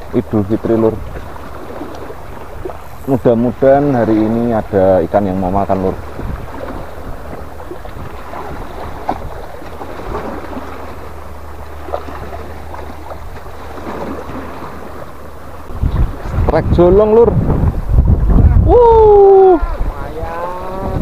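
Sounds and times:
waves washing against rocks: 0.0s - 16.7s
wind rumbling on microphone: 0.0s - 21.0s.

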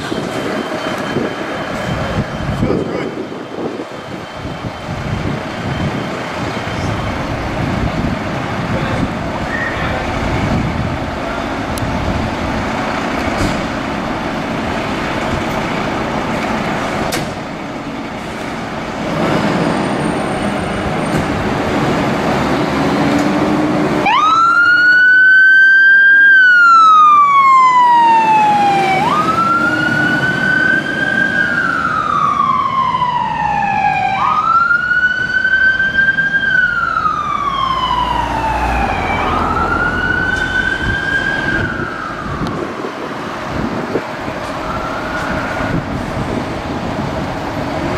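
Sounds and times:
fire engine diesel engine: 0.0s - 47.9s
wail siren: 24.0s - 46.1s.

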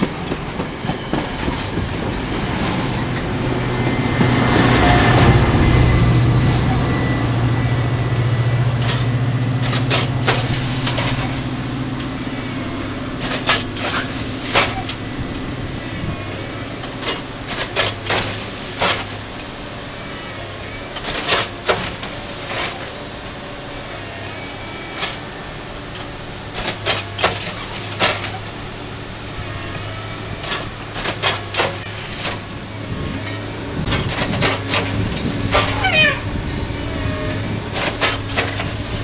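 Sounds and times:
diesel machine hum: 0.0s - 39.0s
machine knocks and clanks: 8.8s - 12.2s, 12.8s - 15.5s, 16.2s - 19.2s, 21.0s - 22.9s, 25.9s - 28.6s, 29.7s - 36.6s, 37.2s - 39.0s.

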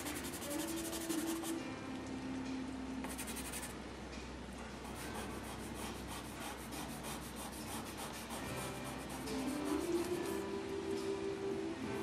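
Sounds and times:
pencil scratching on paper: 0.0s - 1.5s, 3.1s - 3.7s, 4.9s - 10.1s.

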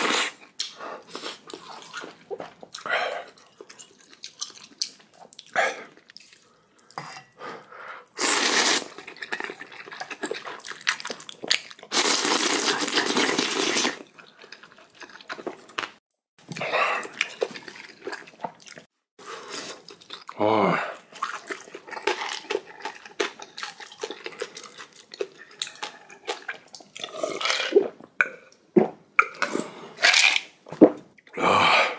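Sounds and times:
chewing and mouth sounds: 0.5s - 7.0s, 8.6s - 20.4s, 21.0s - 28.6s
noodles being slurped: 8.1s - 15.7s.

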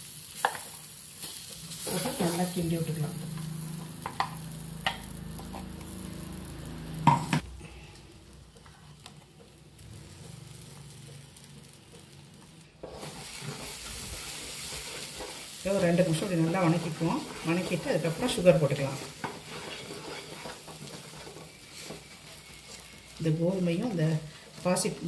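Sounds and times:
faint sizzle: 0.0s - 25.0s
wooden spatula scraping a pan: 12.8s - 25.0s.

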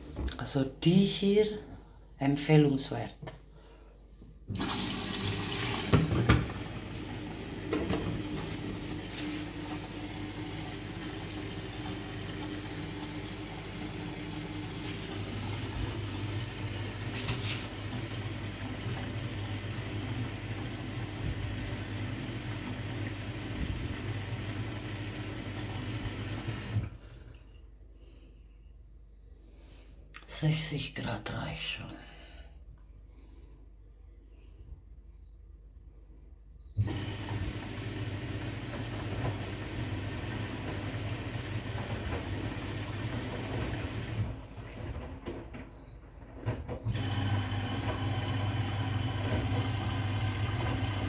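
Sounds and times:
water rushing into washing machine: 4.5s - 27.6s, 36.8s - 51.0s.

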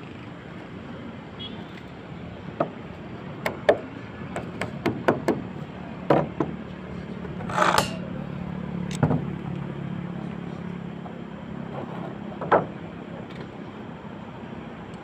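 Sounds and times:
tools knocking and tapping: 6.1s - 6.6s
scraping rustle: 7.4s - 8.1s.

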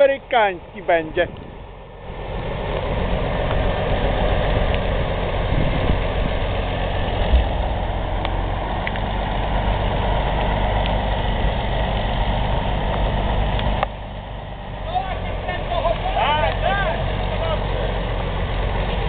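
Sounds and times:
diesel engine running: 0.0s - 19.0s
low knock: 7.2s - 7.8s.

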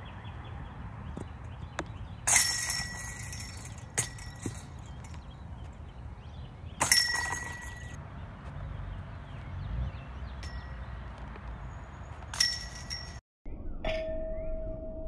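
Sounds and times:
putts hitting metal basket chains: 1.2s - 5.3s, 6.8s - 8.0s, 12.3s - 13.2s.

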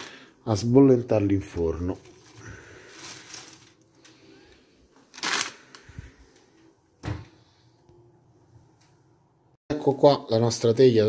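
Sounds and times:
plastic bag rustling: 1.5s - 6.4s.

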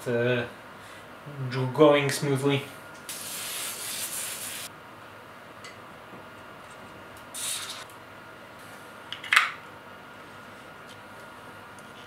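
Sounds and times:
spray can hissing: 3.1s - 4.7s, 7.4s - 7.8s.

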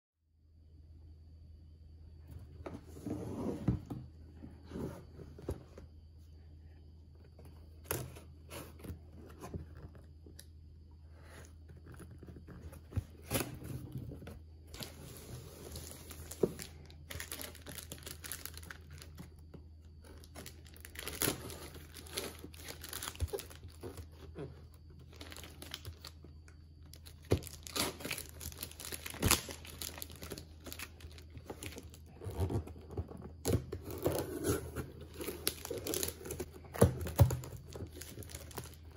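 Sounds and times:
packing tape crinkling: 15.7s - 19.3s, 20.0s - 24.3s, 26.9s - 38.9s.

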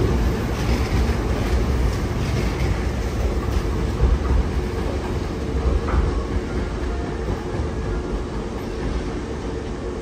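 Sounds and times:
wheels clacking on rail joints: 0.0s - 7.9s
electric train rumble: 0.0s - 10.0s.

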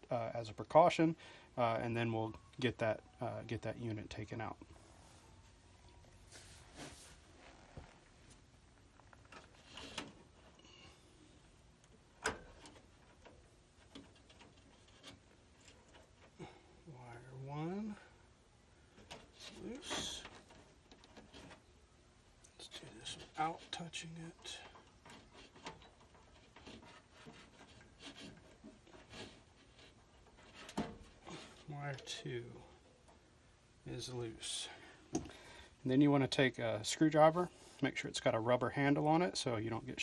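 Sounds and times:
faint rustles: 4.6s - 35.8s
hands rubbing wires: 12.5s - 16.4s, 19.0s - 21.7s, 22.6s - 31.8s.

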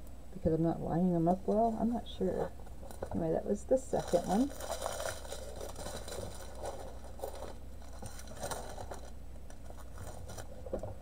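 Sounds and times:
steady low hum: 0.0s - 11.0s
plastic bags rustling: 3.8s - 11.0s.

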